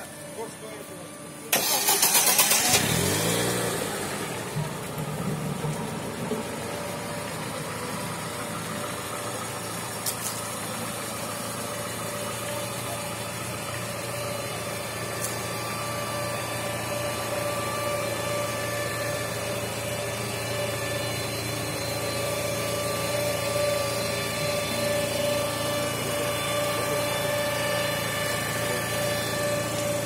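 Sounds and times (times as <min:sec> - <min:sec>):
car engine idling: 0:00.0 - 0:30.0
starter motor cranking: 0:01.5 - 0:03.5.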